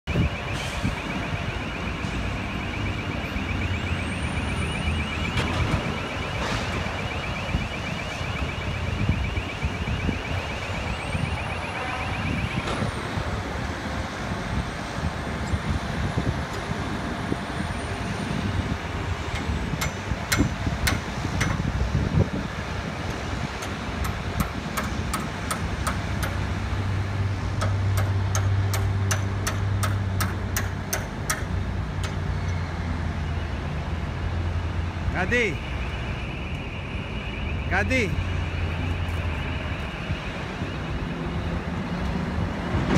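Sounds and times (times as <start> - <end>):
fast-pulsing electronic warning beeper: 0.1 - 12.9
sharp metallic clicks: 19.3 - 21.7, 27.6 - 32.6.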